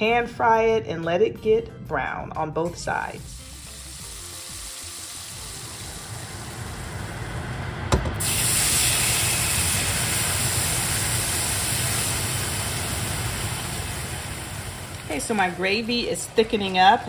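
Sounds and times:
steaks sizzling in oil: 3.2s - 7.4s, 8.2s - 17.0s
milk poured into hot skillet: 3.3s - 7.0s, 8.2s - 15.1s.

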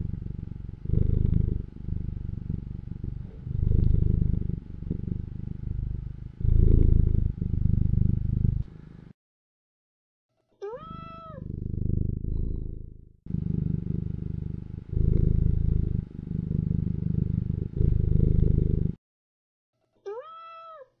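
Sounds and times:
cat purring: 0.0s - 9.1s, 11.0s - 19.0s
cat meow: 10.6s - 11.4s, 20.1s - 21.0s.

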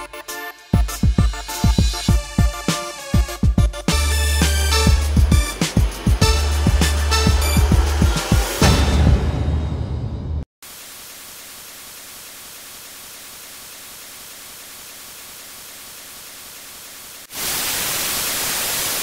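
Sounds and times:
white noise hiss: 10.6s - 19.0s.

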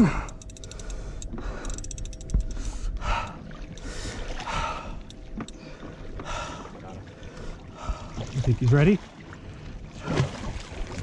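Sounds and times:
fishing reel clicking: 0.0s - 4.0s, 5.0s - 5.6s
heavy breaths: 0.0s - 8.2s
low rumble of wind and water: 0.0s - 11.0s.

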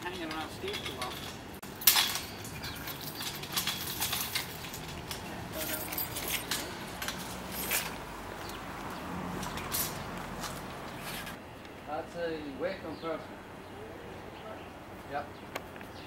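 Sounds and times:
metallic clinks and rattles: 0.0s - 8.0s, 9.4s - 11.4s.

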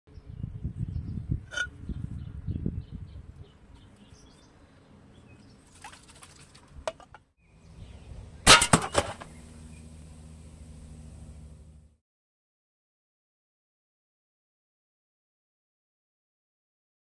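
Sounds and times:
airsoft rifle shot hitting can: 8.5s - 9.3s.

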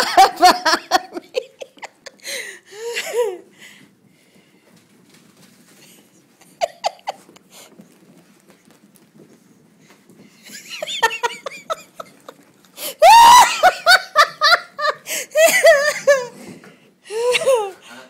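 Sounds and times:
person laughing: 6.4s - 7.4s, 10.6s - 12.4s, 13.0s - 16.3s.

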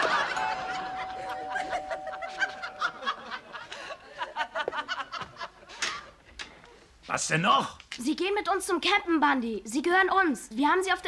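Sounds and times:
studio audience laughing: 0.0s - 6.2s.

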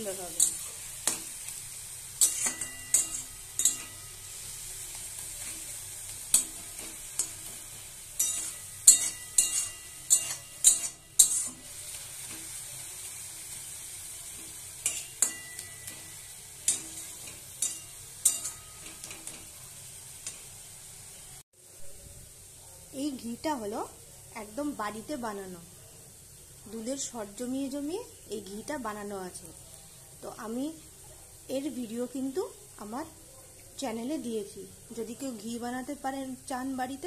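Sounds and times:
vegetables sizzling in a pan: 0.0s - 37.0s
spatula scraping a metal pan: 2.2s - 4.2s, 5.2s - 12.6s, 14.4s - 19.4s.

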